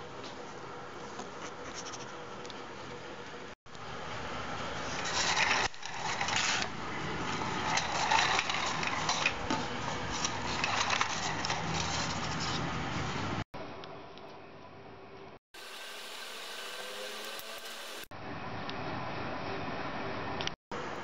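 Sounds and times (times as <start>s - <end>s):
toy truck rattling on tile floor: 7.6s - 9.4s, 10.4s - 12.0s.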